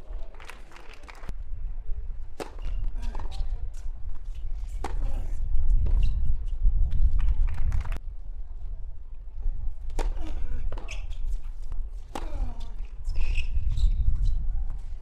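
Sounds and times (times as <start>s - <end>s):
tennis ball struck by rackets: 2.4s - 3.4s, 4.8s - 5.2s, 9.9s - 11.0s.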